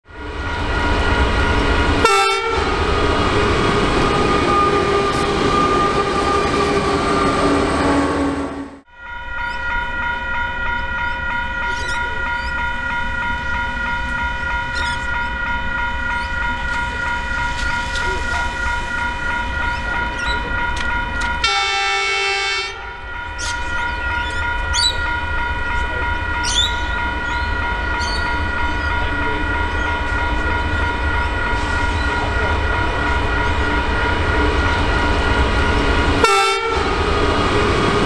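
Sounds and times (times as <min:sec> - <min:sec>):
diesel locomotives rumbling: 0:00.0 - 0:38.0.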